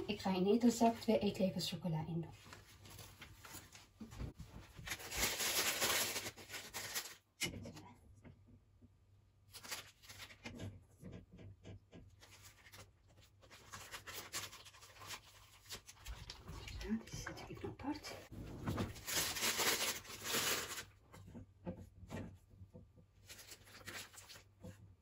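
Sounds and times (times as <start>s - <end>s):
plastic piping bag crinkling: 4.7s - 7.3s, 9.5s - 10.5s, 12.2s - 16.9s, 18.9s - 20.9s, 23.2s - 24.5s.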